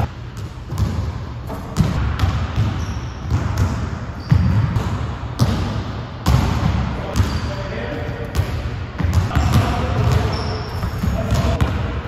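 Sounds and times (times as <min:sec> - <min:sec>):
basketball bouncing on wood floor: 0:00.0 - 0:07.4, 0:08.3 - 0:11.8.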